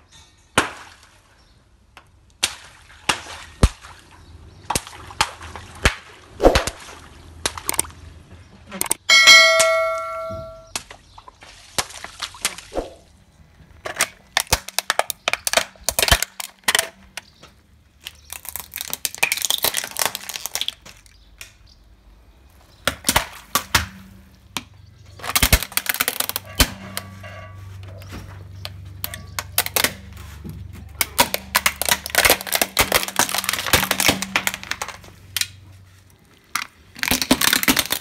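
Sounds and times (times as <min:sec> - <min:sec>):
brief ringing tone: 0:09.1 - 0:10.7
plastic cracking and crunching: 0:13.6 - 0:21.8, 0:22.5 - 0:27.1, 0:28.0 - 0:38.0.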